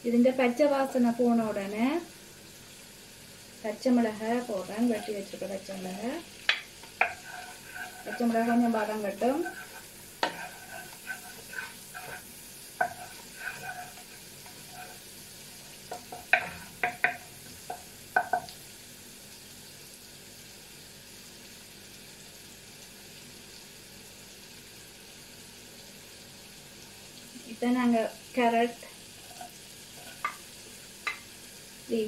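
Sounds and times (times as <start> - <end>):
chillies sizzling in butter: 0.0 - 32.0
spoon scraping and tapping pan: 4.7 - 5.4, 6.4 - 15.1, 15.7 - 18.6, 29.2 - 31.3.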